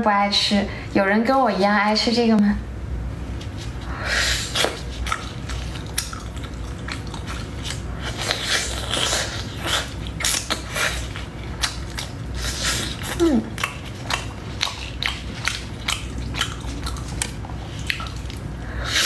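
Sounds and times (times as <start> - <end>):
eating: 3.5 - 19.0
meat tearing: 4.5 - 18.6.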